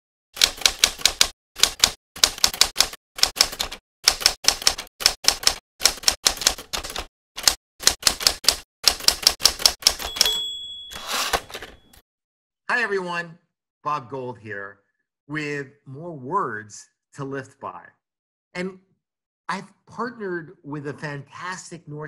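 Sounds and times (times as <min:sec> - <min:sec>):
typewriter key strikes: 0:07.4 - 0:12.0
typewriter bell ringing: 0:09.9 - 0:12.0
typewriter carriage sliding: 0:10.1 - 0:12.0.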